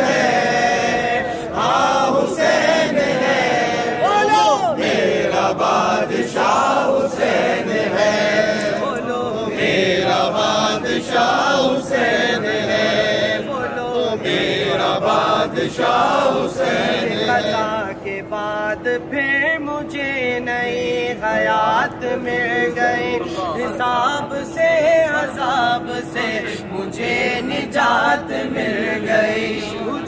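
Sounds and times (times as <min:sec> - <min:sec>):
men chanting together: 0:00.0 - 0:17.9, 0:25.1 - 0:30.0.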